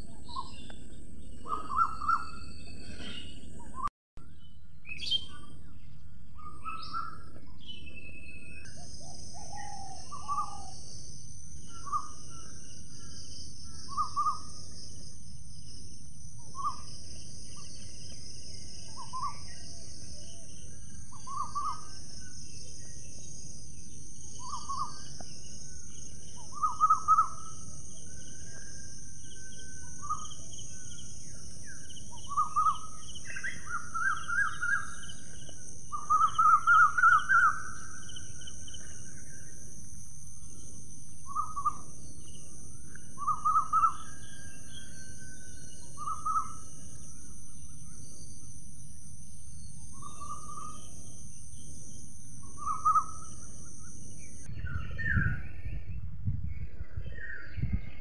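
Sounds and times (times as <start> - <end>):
birds chirping: 0.0 - 56.0
high-pitched insect drone: 8.7 - 54.6
low wind-like rumble: 52.4 - 58.0.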